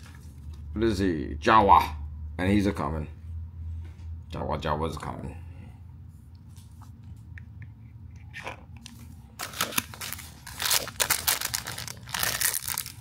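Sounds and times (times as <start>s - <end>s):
foil wrapper crinkling and tearing: 8.9s - 13.0s.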